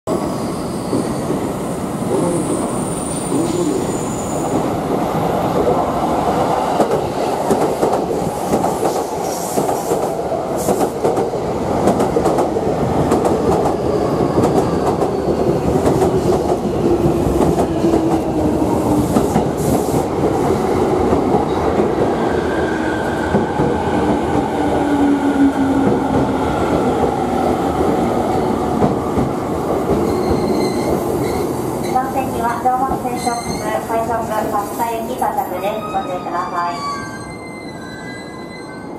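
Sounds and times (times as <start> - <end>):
train wheels clattering on rails: 6.7 - 22.2, 28.6 - 32.0.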